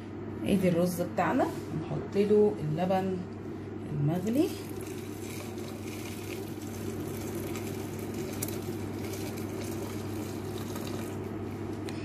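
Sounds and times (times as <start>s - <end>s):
milk pouring and splashing: 4.4s - 11.7s.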